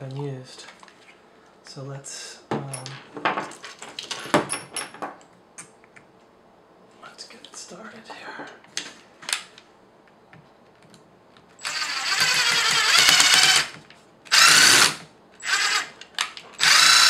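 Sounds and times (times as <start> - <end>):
cordless drill motor whine: 11.6 - 16.0, 16.6 - 17.0.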